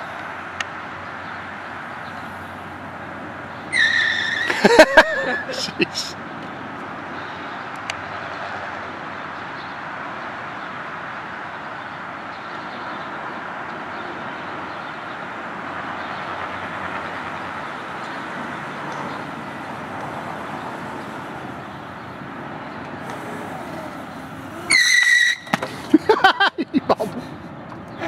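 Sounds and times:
tire screech on asphalt: 0.0 - 6.2, 17.0 - 25.9
mini bike engine running: 23.0 - 25.6.

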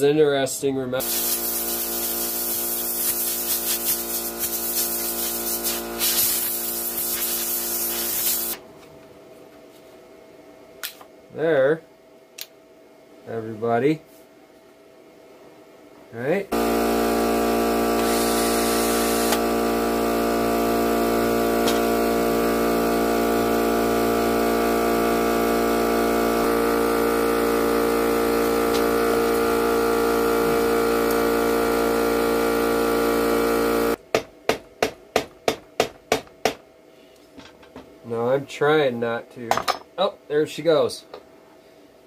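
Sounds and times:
cordless drill running: 1.0 - 8.6, 16.5 - 34.0.

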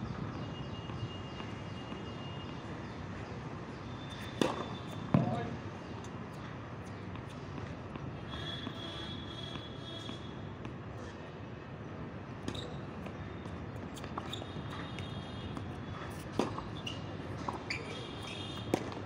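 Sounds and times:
shoe squeaks: 3.9 - 5.4, 12.4 - 18.9
tennis ball bouncing on hard court: 4.2 - 5.5, 12.4 - 19.0
tennis ball struck by rackets: 4.2 - 5.5, 15.5 - 19.0.

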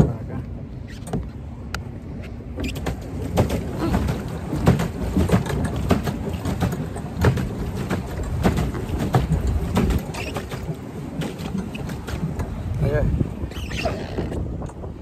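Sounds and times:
water splashing against hull: 0.0 - 15.0
knocks against boat hull: 2.6 - 12.6
wind buffeting microphone: 2.8 - 15.0.

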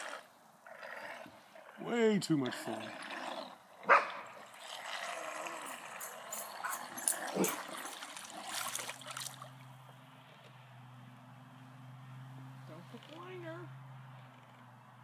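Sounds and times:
water splashing and gurgling: 4.1 - 9.9.

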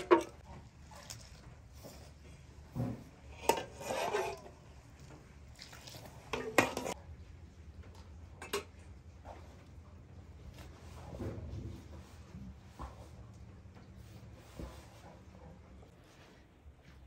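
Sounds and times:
dishes and pots clinking: 0.0 - 0.4, 2.8 - 4.6, 6.2 - 7.0, 8.3 - 8.9.

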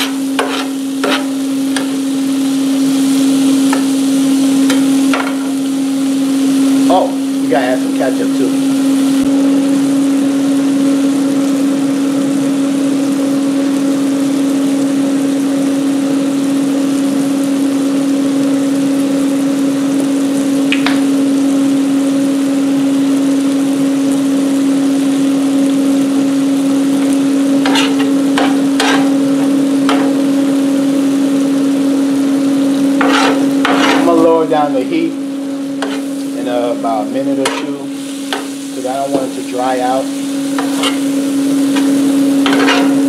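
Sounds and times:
food sizzling on griddle: 0.0 - 43.0
constant hum: 25.4 - 43.0.

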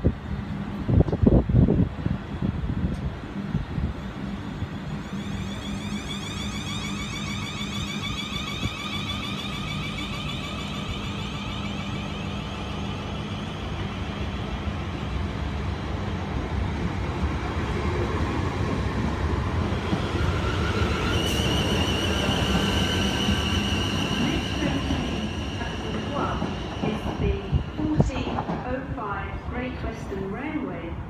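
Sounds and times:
electric train rumble: 0.0 - 31.0.

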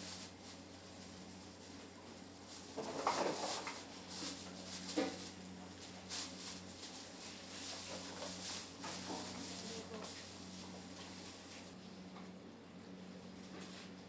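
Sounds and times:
low hum of kitchen equipment: 0.0 - 14.0.

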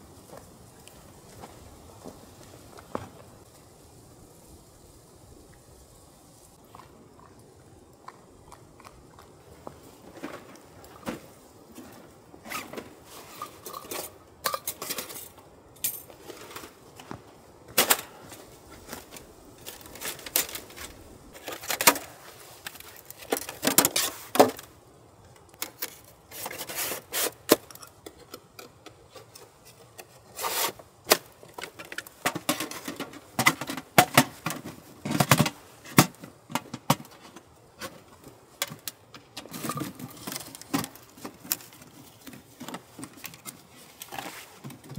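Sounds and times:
metal panels clinking and scraping: 10.1 - 17.1, 17.7 - 24.7, 25.6 - 44.9.

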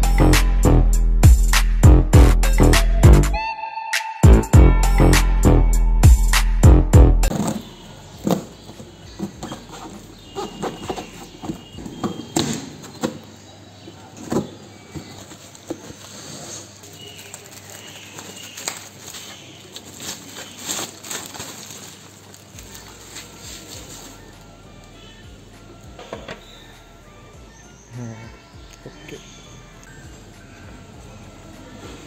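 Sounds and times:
cardboard box rustling and scraping: 7.3 - 13.2, 15.0 - 17.3
bubble wrap crinkling: 15.0 - 24.6.

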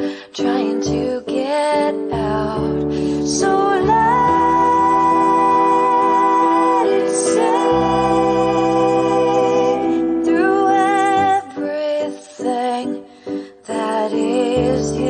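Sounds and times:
sustained musical backing: 2.1 - 15.0
woman singing long notes: 3.2 - 7.9.

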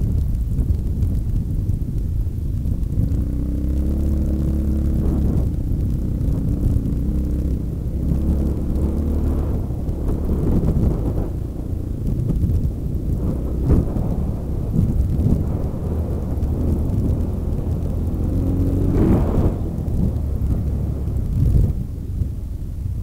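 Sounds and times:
motorcycle engine running: 0.0 - 23.0
wind and ground rumble: 0.0 - 23.0.

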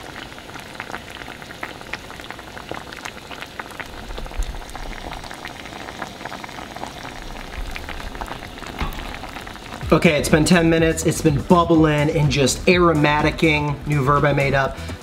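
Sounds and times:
liquid bubbling in a pan: 0.0 - 10.8.

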